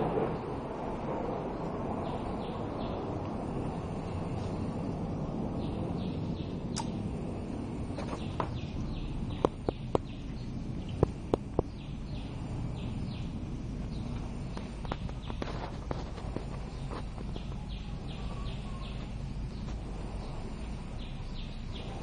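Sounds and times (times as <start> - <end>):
background noise: 0.0 - 22.0
faint high chirps: 16.6 - 22.0.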